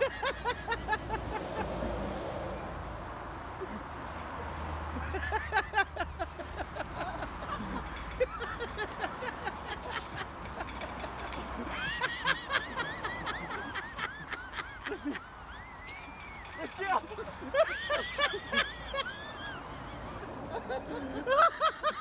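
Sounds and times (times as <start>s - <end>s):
person laughing and giggling: 0.0s - 1.9s, 4.9s - 15.6s, 17.0s - 22.0s.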